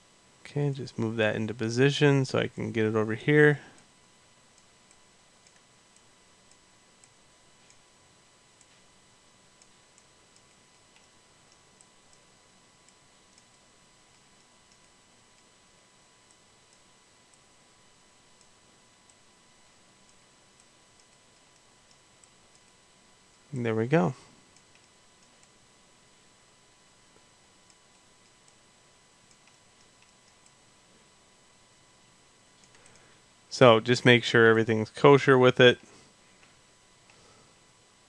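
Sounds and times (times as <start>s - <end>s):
faint high whine: 0.0s - 38.0s
computer mouse clicking: 12.8s - 15.5s, 20.1s - 22.8s, 29.2s - 30.6s, 32.6s - 33.1s.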